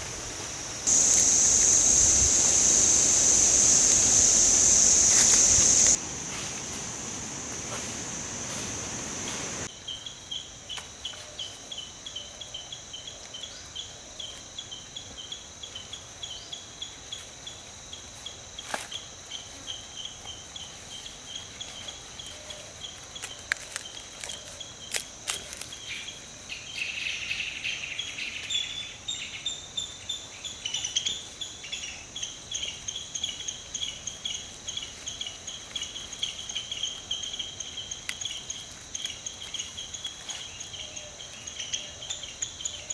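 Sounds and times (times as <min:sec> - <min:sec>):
continuous high whine: 0:00.0 - 0:42.9
insects chirping: 0:00.0 - 0:42.9
leaves crackling when handled: 0:00.1 - 0:09.7, 0:23.0 - 0:25.9.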